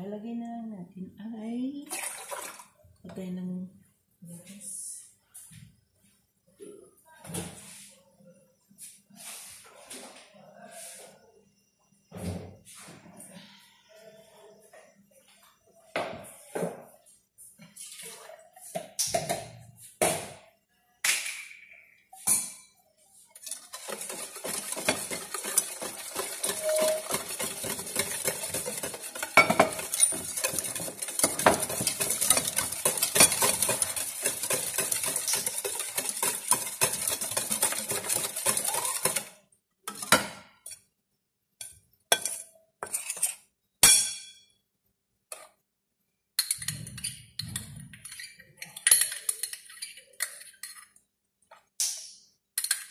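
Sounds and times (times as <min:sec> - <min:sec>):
utensil clinking in mixing bowl: 0:23.4 - 0:40.8.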